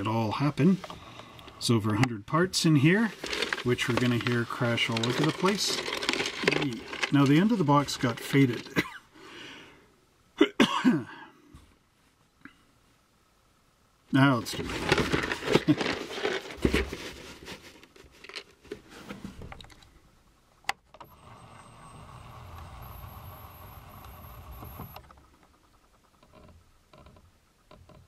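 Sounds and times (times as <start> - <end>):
faint hum: 0.0 - 27.7
plastic parts rattling in a box: 2.9 - 8.8, 14.4 - 18.9.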